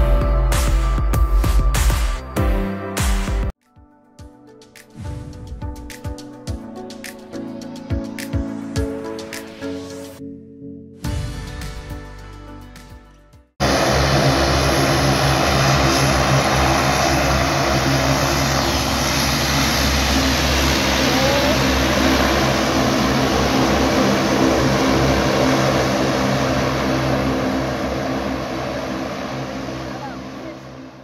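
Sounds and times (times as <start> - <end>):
propeller hum: 13.6 - 31.0.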